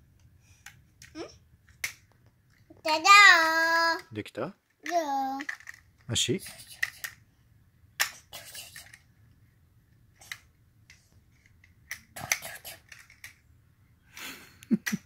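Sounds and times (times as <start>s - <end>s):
plastic toy parts clicking: 0.6s - 2.6s, 4.8s - 7.2s, 8.0s - 9.0s, 10.2s - 13.4s.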